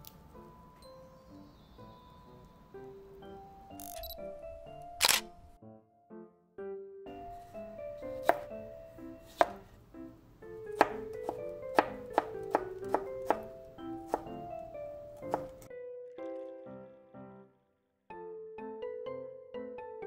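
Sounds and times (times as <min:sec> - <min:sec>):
background music: 0:00.0 - 0:20.0
knife chopping on cutting board: 0:08.0 - 0:08.6, 0:09.2 - 0:09.7, 0:10.7 - 0:14.4, 0:15.2 - 0:15.7.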